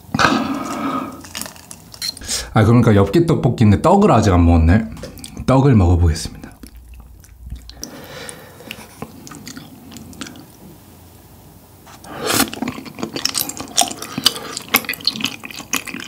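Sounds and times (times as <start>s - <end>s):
loud chewing: 6.4s - 10.6s, 12.0s - 16.0s.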